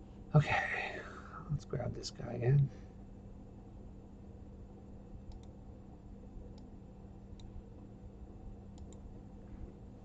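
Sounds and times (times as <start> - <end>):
steady low hum: 0.0 - 10.0
computer mouse clicks: 5.2 - 5.6, 6.5 - 6.7, 7.3 - 7.9, 8.7 - 9.1.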